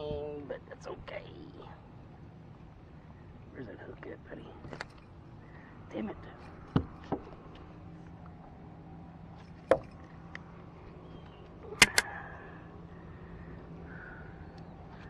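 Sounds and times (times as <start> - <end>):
steady low hum: 0.0 - 15.0
sharp clicks and knocks: 9.5 - 10.4, 11.8 - 12.1.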